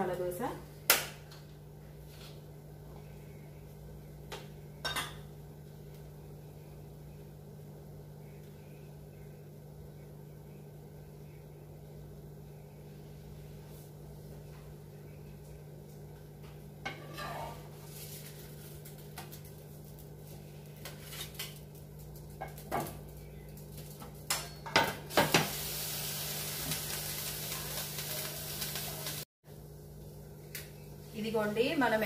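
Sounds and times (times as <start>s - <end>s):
steady low hum: 0.0s - 24.5s.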